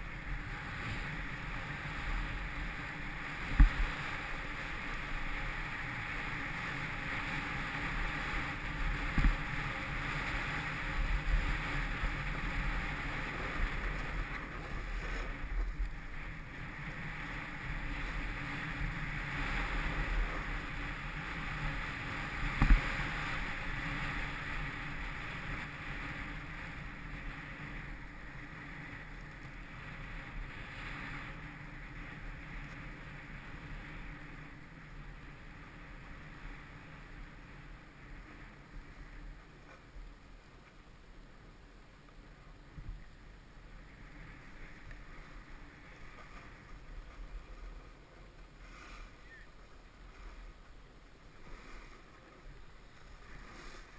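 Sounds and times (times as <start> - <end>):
wind buffeting microphone: 0.0 - 33.8
snowboard scraping on snow: 0.0 - 40.5, 43.2 - 53.9.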